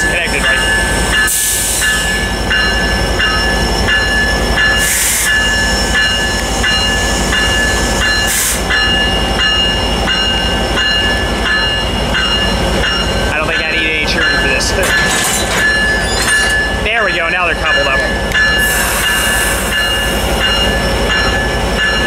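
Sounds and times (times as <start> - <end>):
diesel locomotive running: 0.0 - 22.0
locomotive bell ringing: 0.0 - 22.0
air hiss bursts: 8.3 - 8.7, 18.6 - 19.9.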